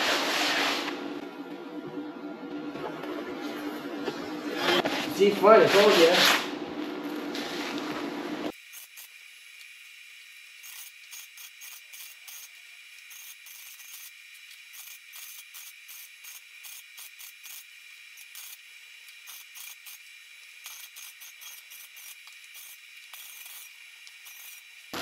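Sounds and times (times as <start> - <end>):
crackling welding arc: 8.5 - 25.0.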